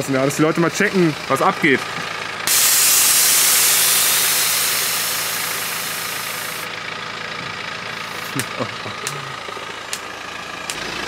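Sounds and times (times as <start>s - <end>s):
diesel engine idling: 0.0s - 11.0s
air suspension hissing: 2.4s - 6.7s.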